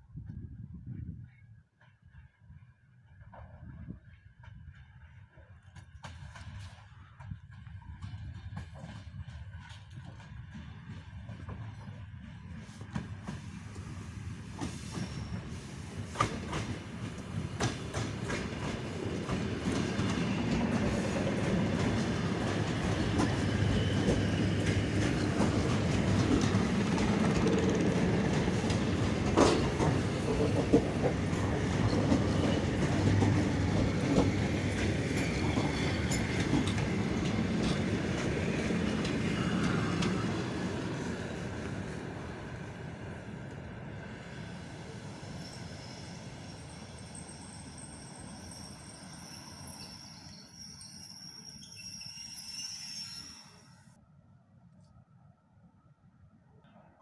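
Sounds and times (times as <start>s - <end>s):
electric train passing: 8.4s - 53.9s
wheels clicking over rail joints: 17.6s - 40.2s.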